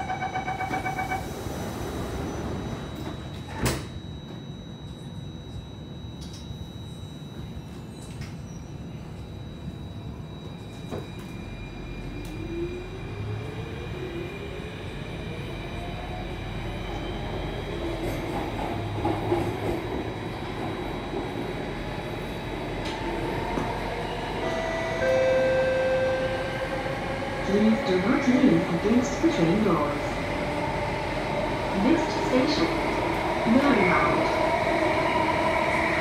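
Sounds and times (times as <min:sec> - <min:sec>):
wheels rumbling on rail: 0:10.3 - 0:36.0.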